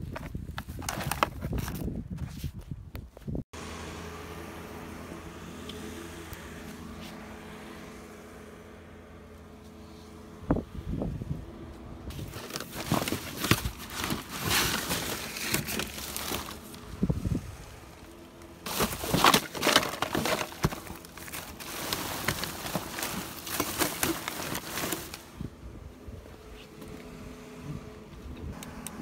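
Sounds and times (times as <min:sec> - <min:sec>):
plastic bags rustling: 0:12.1 - 0:17.4, 0:18.0 - 0:25.5.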